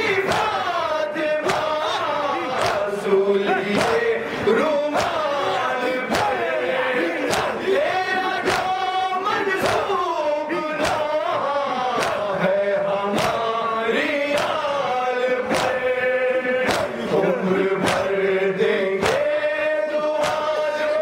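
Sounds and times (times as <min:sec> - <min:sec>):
men chanting in unison: 0:00.0 - 0:21.0
hands slapping chests: 0:00.2 - 0:10.0, 0:10.7 - 0:11.3, 0:11.9 - 0:12.3, 0:13.1 - 0:13.5, 0:14.2 - 0:14.7, 0:15.4 - 0:15.9, 0:16.6 - 0:17.1, 0:17.8 - 0:18.2, 0:19.0 - 0:19.4, 0:20.0 - 0:20.6.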